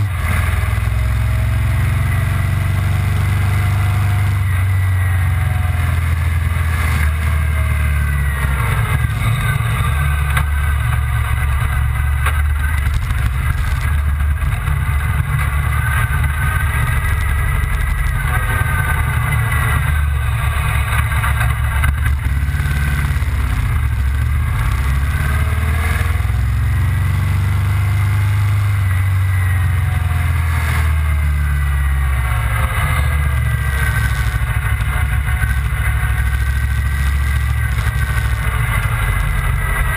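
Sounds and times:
motorcycle engine running: 0.0s - 39.9s
wind rumble on microphone: 4.4s - 26.7s.

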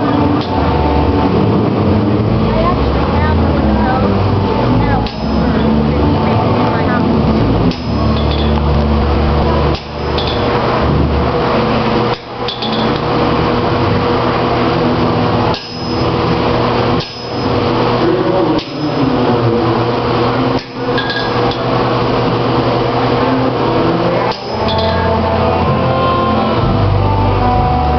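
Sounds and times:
anvil ringing: 5.0s - 5.8s, 7.7s - 8.6s, 9.7s - 10.5s, 12.1s - 13.0s, 15.5s - 16.1s, 17.0s - 17.5s, 21.0s - 21.6s, 24.3s - 25.2s
hammer striking metal on anvil: 5.0s - 5.8s, 7.7s - 8.6s, 9.7s - 10.5s, 12.1s - 13.0s, 15.5s - 16.1s, 17.0s - 17.5s, 20.6s - 21.7s, 24.3s - 25.2s.

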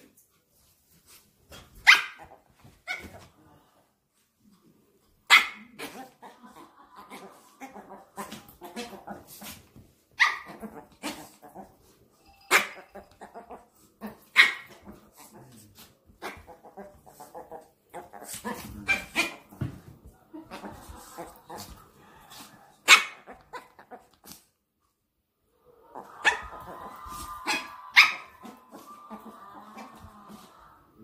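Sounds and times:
dogs yapping: 25.7s - 30.7s.

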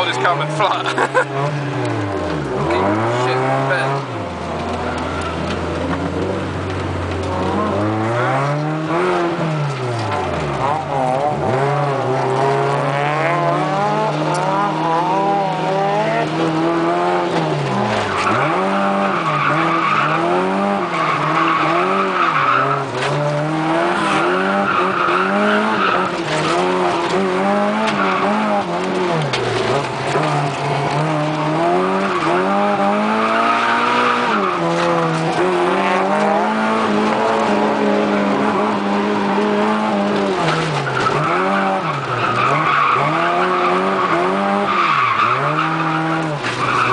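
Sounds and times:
car engine revving: 0.0s - 46.9s
tyres squealing: 39.9s - 46.9s.

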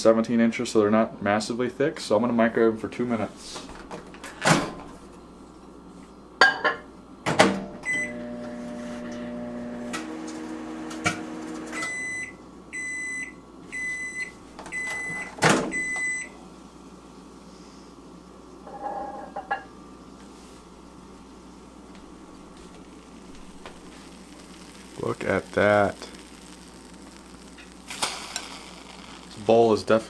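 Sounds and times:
microwave oven humming: 6.5s - 17.2s.

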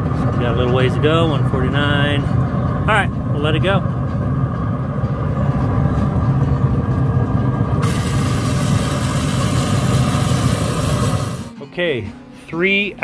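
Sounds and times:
low mechanical running noise: 0.0s - 11.6s
steady high hiss: 7.8s - 11.5s.

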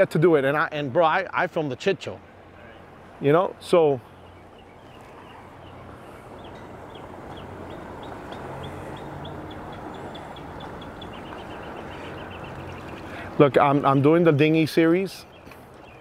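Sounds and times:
boat engines humming: 0.0s - 16.0s
bird chirping: 4.0s - 14.1s.

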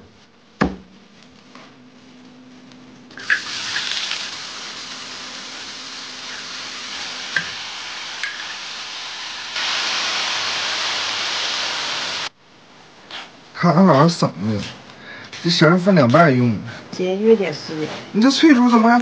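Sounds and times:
meat sizzling in hot oil: 3.2s - 12.3s
water poured into hot wok: 3.2s - 12.3s.

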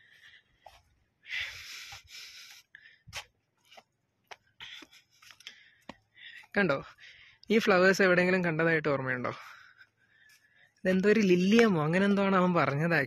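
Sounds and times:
soft breathing: 0.0s - 3.9s, 4.5s - 7.5s, 9.3s - 10.8s.

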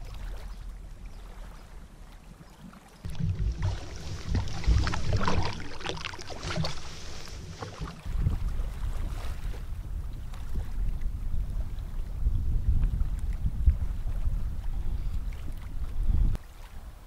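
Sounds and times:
water splashing against canoe: 0.0s - 17.0s
wind buffeting microphone: 0.0s - 17.0s
low rumble: 3.1s - 16.4s.

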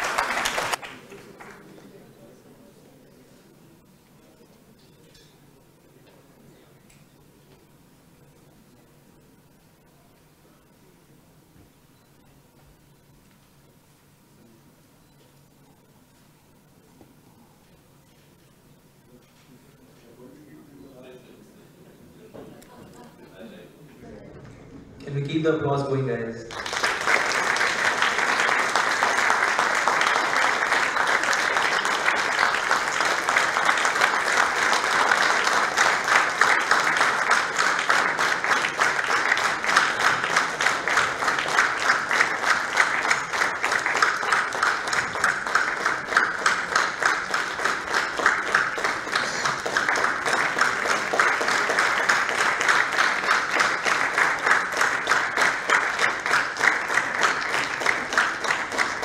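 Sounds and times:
audience applauding: 0.0s - 2.0s, 26.5s - 59.0s.

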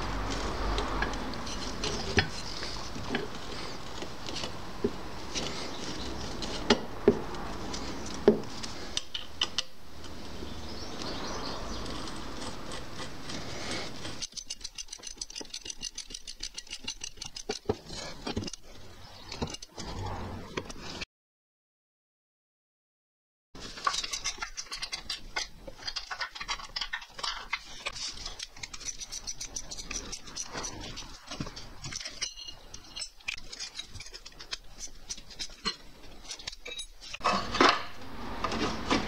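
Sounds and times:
metal parts clinking and knocking: 13.8s - 18.6s, 23.7s - 39.0s.

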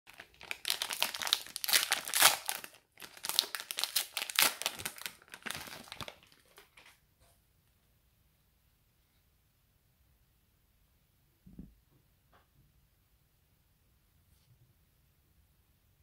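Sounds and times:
wrapper crinkling and tearing: 0.1s - 6.9s.

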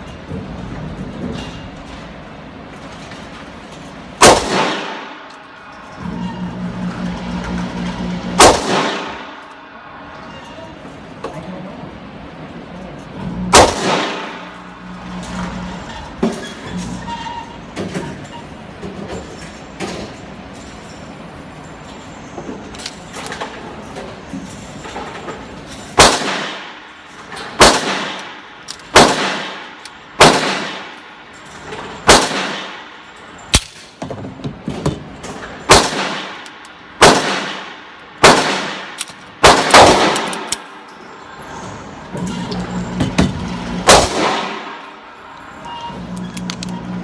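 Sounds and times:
pistol shots echoing indoors: 4.2s - 5.6s, 7.3s - 9.7s, 13.5s - 15.5s, 26.0s - 31.2s, 32.0s - 34.0s, 35.7s - 40.9s, 43.6s - 45.0s.

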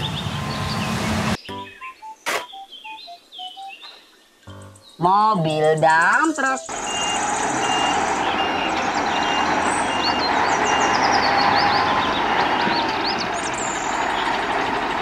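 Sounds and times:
diesel dump truck running: 0.0s - 1.8s, 6.6s - 15.0s
reversing alarm beeping: 6.4s - 13.4s.

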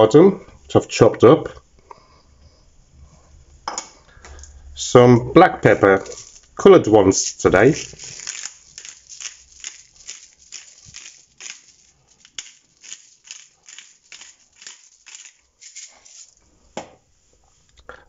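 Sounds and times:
pepper mill grinding: 5.7s - 6.6s, 7.2s - 16.5s.

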